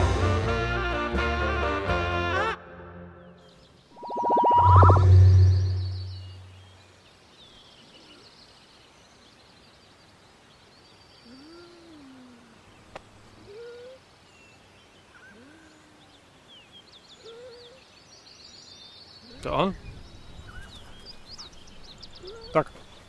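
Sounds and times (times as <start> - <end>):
small birds chirping: 3.4 - 23.0
synthesized tone: 4.0 - 6.5.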